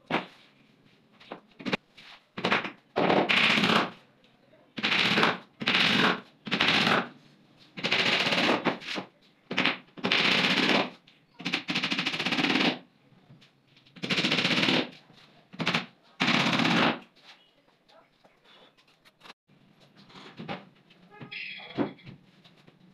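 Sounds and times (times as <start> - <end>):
hammer driving nails into board: 7.8 - 12.8.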